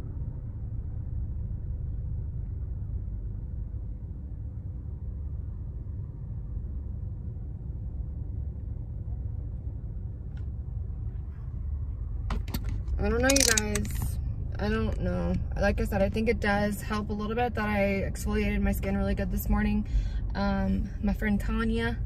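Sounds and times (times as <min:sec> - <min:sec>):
faint constant hum: 0:00.0 - 0:22.0
car cabin rumble: 0:10.2 - 0:22.0.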